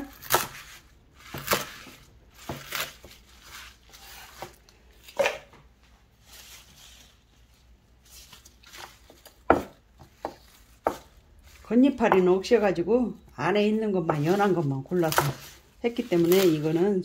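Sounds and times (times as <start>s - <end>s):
knife chopping on wooden board: 0.1s - 3.2s, 9.4s - 11.2s, 15.0s - 16.5s.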